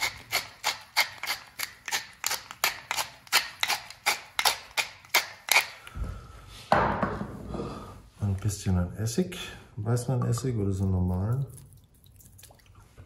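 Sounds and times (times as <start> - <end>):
pepper mill grinding: 0.0 - 5.8.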